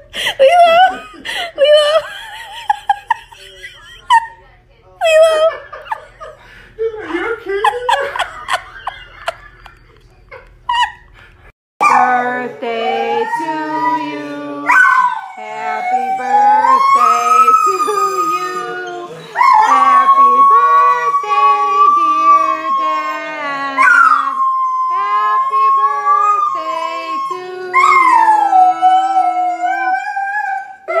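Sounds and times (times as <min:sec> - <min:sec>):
dog howling: 0:11.8 - 0:31.0.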